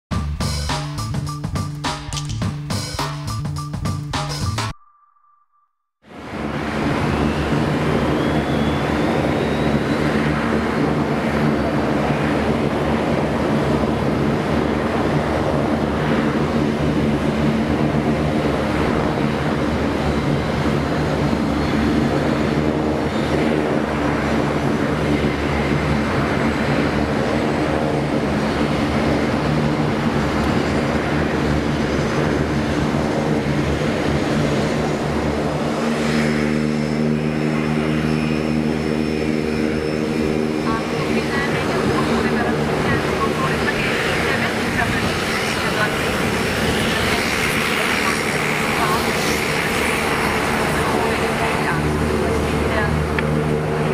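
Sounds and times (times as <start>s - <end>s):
faint high turbine whine: 6.1s - 53.9s
loud propeller drone: 6.1s - 53.9s.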